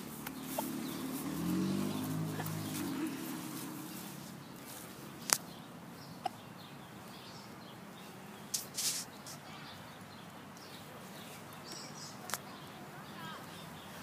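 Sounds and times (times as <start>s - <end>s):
short rustle: 0.0s - 5.5s, 8.4s - 9.5s
sharp clicks: 5.2s - 5.5s.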